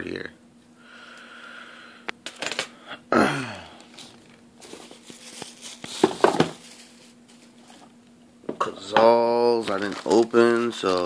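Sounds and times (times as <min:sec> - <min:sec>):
plastic wrap crinkling: 0:03.8 - 0:08.0, 0:09.5 - 0:11.0
cardboard boxes knocking: 0:06.0 - 0:06.6.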